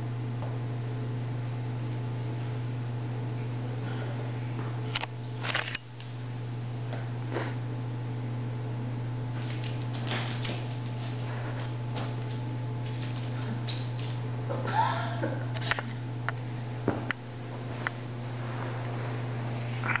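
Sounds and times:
low electrical hum: 0.0s - 20.0s
owls shuffling and flapping: 9.4s - 14.2s.

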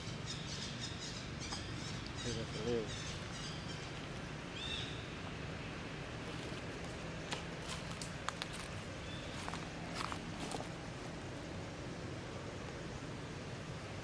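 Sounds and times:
low outdoor background: 0.0s - 14.0s
footsteps on dry leaves: 6.2s - 10.8s.

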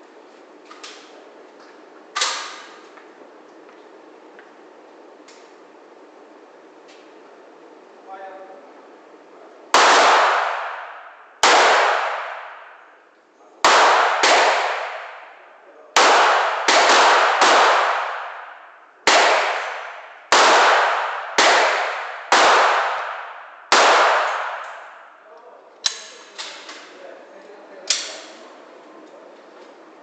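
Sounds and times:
pistol shots echoing indoors: 2.1s - 2.8s, 9.7s - 26.9s, 27.8s - 28.4s.

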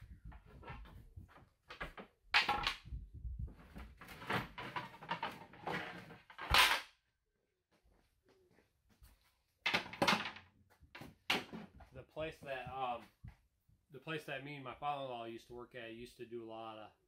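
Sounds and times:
wooden boards clattering: 3.8s - 6.8s, 9.7s - 11.8s.

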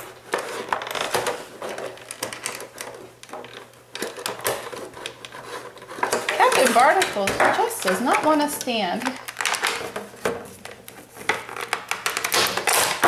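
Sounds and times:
plastic tray crackling: 0.0s - 13.0s
plastic toy figures rattling: 5.8s - 10.1s.

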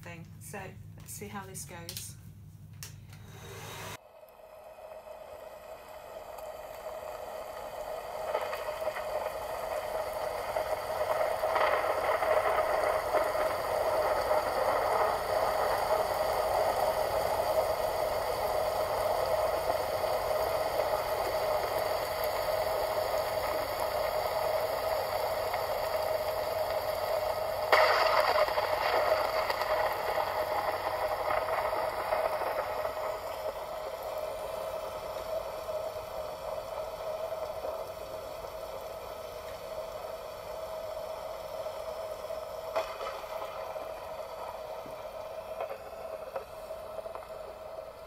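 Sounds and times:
hair dryer blowing: 3.2s - 7.6s.

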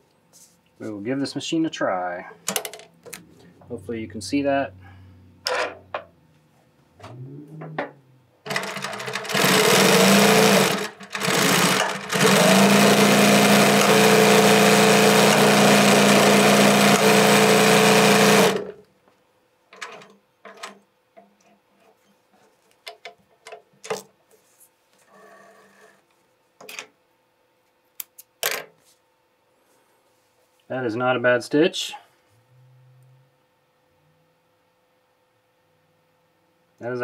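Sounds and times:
sewing machine stitching: 8.5s - 18.8s.

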